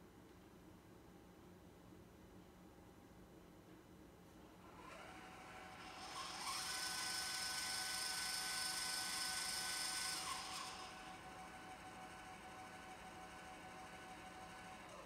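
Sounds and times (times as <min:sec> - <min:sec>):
motor mechanical whine: 0:04.6 - 0:15.0.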